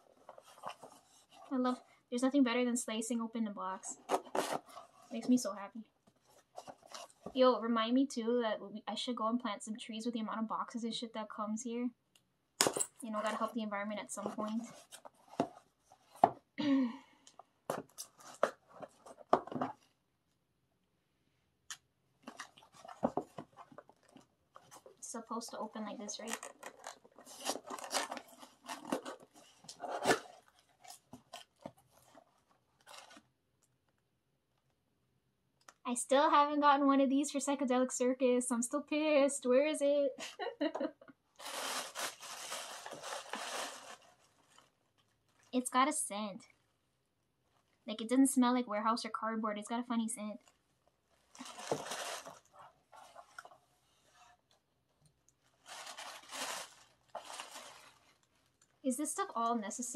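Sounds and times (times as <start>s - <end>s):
tissue paper crinkling: 22.2s - 33.2s, 41.4s - 45.6s, 50.4s - 54.3s, 55.4s - 58.7s.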